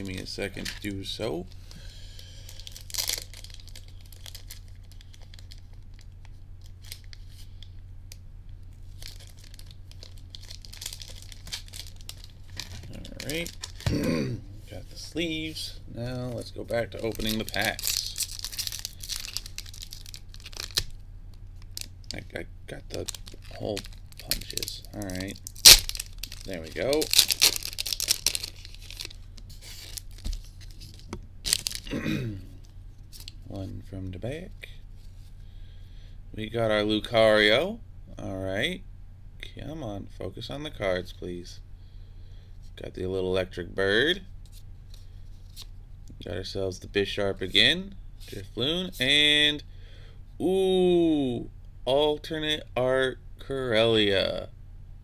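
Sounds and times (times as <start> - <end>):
plastic packaging crinkling: 0.0 - 1.2, 2.2 - 7.6, 8.8 - 14.0, 16.2 - 33.5
low steady hum: 0.0 - 55.0.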